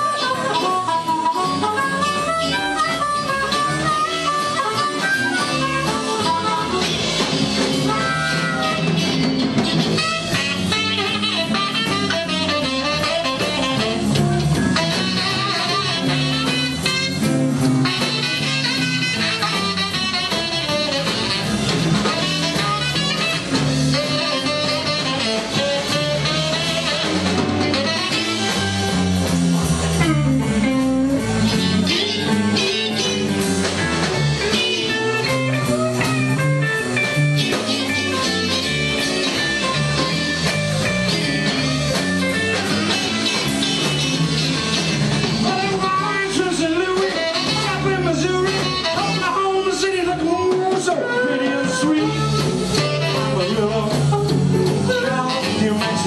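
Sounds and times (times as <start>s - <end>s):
bass guitar: 0.0s - 56.0s
drum kit: 0.0s - 56.0s
electric guitar lead: 0.0s - 56.0s
saxophone: 0.0s - 56.0s.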